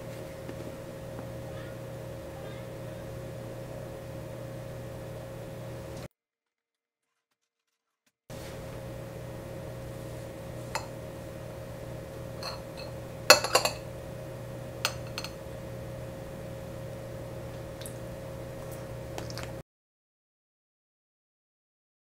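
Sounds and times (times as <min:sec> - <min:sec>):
low hum: 0:00.0 - 0:06.1, 0:08.3 - 0:19.6
cutlery clinking on plate: 0:12.4 - 0:13.8, 0:14.9 - 0:15.4.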